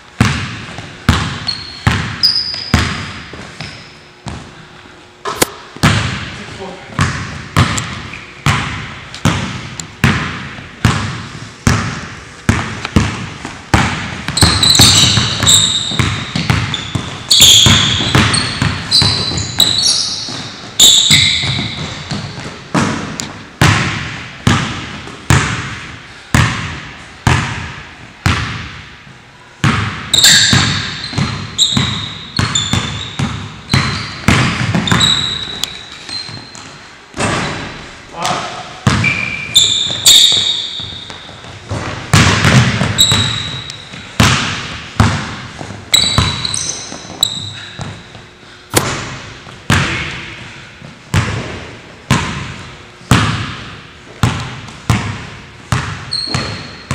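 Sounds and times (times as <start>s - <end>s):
basketball bouncing on wooden floor: 0.2s - 4.5s, 5.3s - 6.3s, 7.0s - 28.8s, 29.6s - 37.7s, 38.8s - 48.2s, 51.1s - 56.9s
sneakers squeaking on floor: 0.2s - 4.6s, 5.2s - 23.2s, 29.6s - 48.4s, 54.1s - 56.9s.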